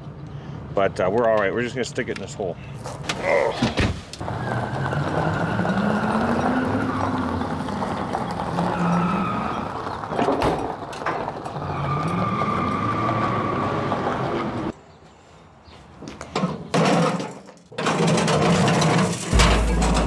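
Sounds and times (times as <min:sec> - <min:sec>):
tyres crunching over gravel: 0:04.2 - 0:14.2
truck engine pulling away: 0:04.2 - 0:14.7
trailer knocks: 0:18.0 - 0:20.0.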